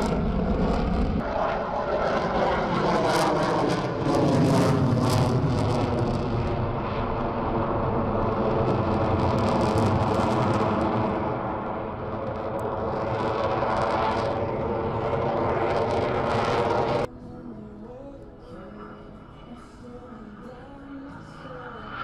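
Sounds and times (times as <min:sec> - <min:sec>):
jet rumble with crackle: 0:00.0 - 0:17.1.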